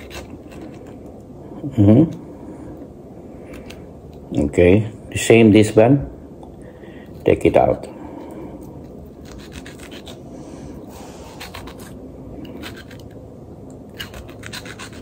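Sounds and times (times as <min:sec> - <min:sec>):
knife cutting a tomato: 0:00.0 - 0:01.0, 0:13.9 - 0:15.0.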